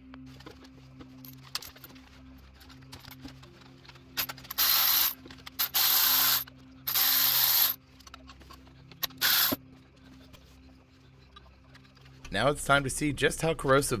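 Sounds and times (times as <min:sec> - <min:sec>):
cordless power tool spinning bolts: 0:04.2 - 0:07.8, 0:09.0 - 0:09.6.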